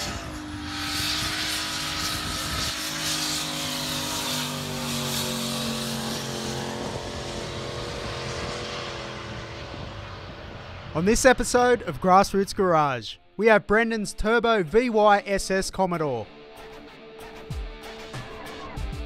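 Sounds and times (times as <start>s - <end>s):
engine at high revs: 0.0s - 11.8s.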